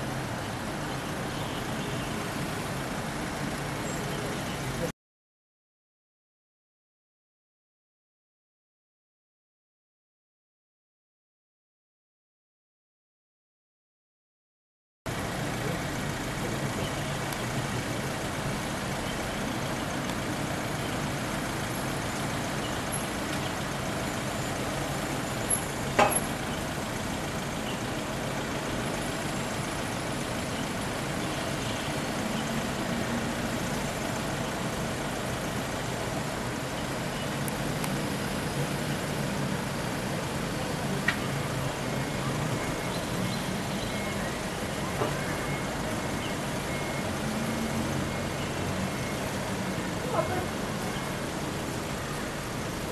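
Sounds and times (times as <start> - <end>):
tow truck engine idling: 15.1 - 52.9
sharp metallic knocks: 26.0 - 26.4.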